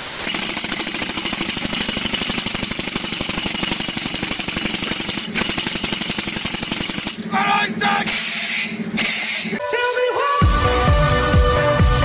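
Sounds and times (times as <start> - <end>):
jackhammer rattling: 0.2 - 9.6.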